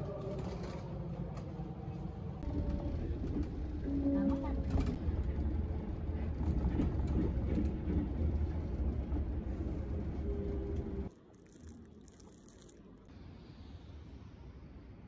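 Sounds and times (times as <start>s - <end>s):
train running low rumble: 0.0s - 11.1s.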